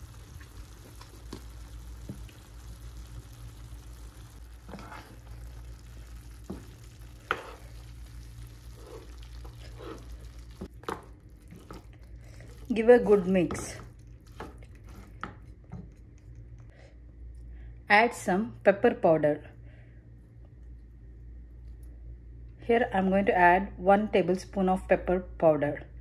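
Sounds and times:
meat sizzling in a pan: 0:00.0 - 0:10.7
spatula scraping a pan: 0:04.6 - 0:05.4, 0:06.4 - 0:10.7.

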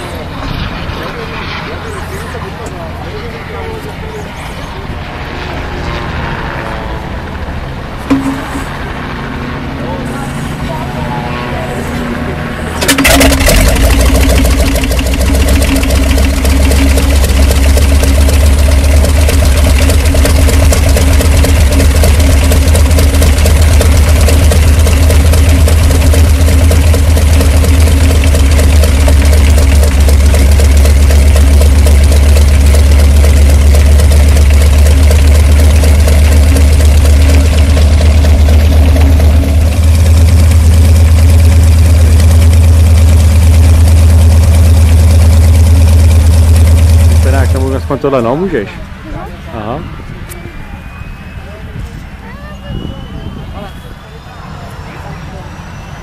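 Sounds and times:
radial piston engine idling: 0:12.8 - 0:48.2.

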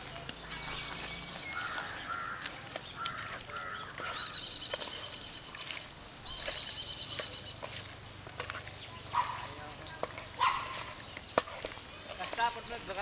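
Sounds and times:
birds whistling: 0:00.0 - 0:08.1, 0:08.7 - 0:13.0
raw chicken squelching in a bowl: 0:00.0 - 0:13.0.

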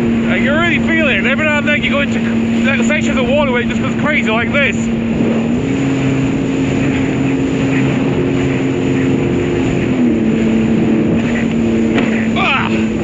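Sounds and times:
personal watercraft engine running: 0:00.0 - 0:13.0
rush of wind and water: 0:00.0 - 0:13.0.

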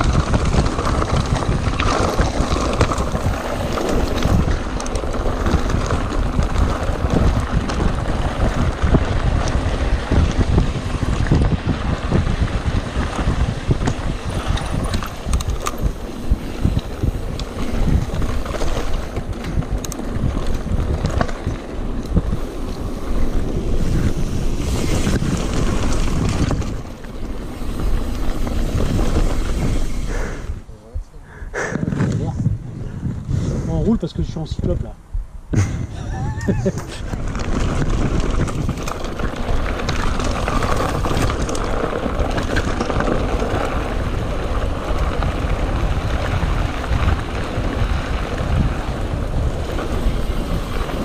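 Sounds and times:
bike clicks and rattles: 0:00.0 - 0:30.7, 0:35.5 - 0:51.0
bike tyres rolling on gravel: 0:00.0 - 0:31.0, 0:31.6 - 0:51.0
wind buffeting microphone: 0:00.0 - 0:51.0.

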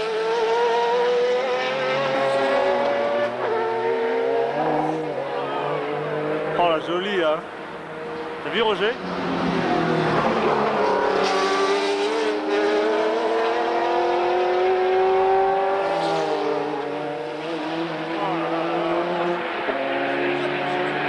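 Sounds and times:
race car engines accelerating: 0:00.0 - 0:21.0.

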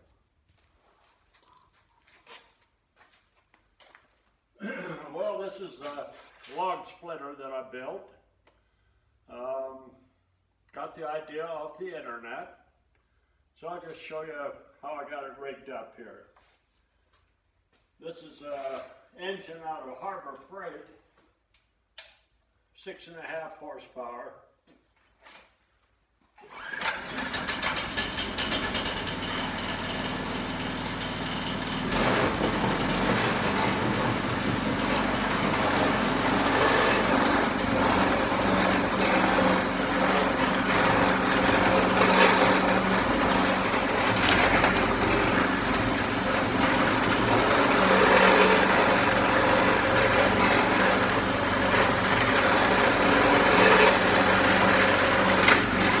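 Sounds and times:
gas engine running: 0:26.6 - 0:56.0.

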